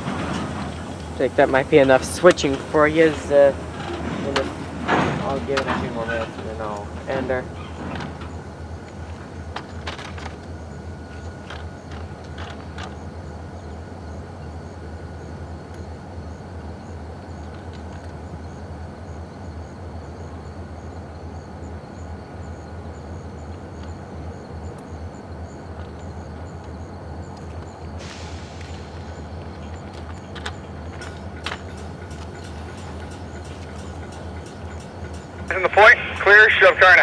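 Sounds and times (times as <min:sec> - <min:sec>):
distant diesel locomotives idling: 0:00.0 - 0:37.0.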